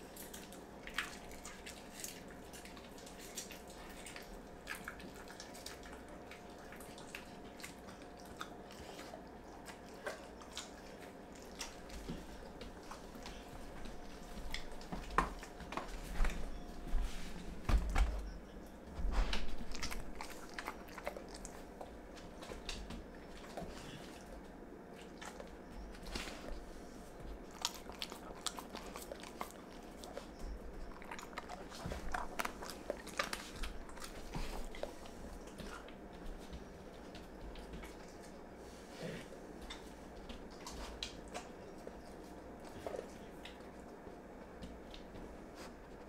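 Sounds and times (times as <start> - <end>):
dog chewing and crunching: 0.0 - 17.1, 17.8 - 46.0.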